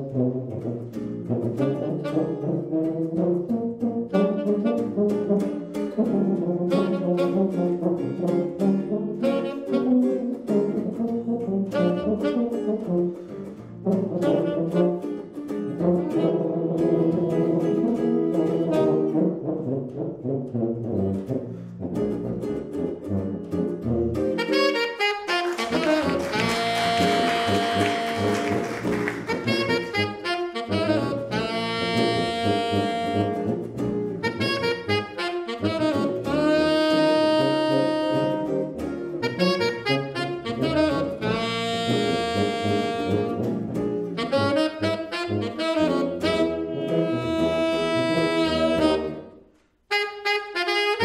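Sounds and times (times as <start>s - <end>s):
tenor saxophone line: 0.0s - 51.0s
tuba playing lead: 0.0s - 51.0s
electric guitar chords: 22.0s - 49.2s.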